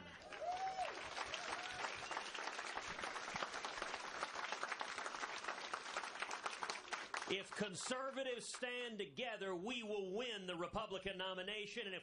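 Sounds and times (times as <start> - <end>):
audience cheering: 0.0 - 7.8
audience applauding: 0.0 - 8.2.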